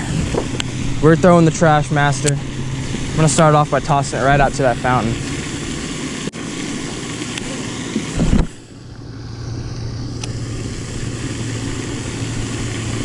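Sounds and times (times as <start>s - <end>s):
wind buffeting microphone: 0.0s - 5.9s
heavy low rumble: 0.0s - 6.0s, 8.3s - 13.0s
steady low hum: 0.0s - 13.0s.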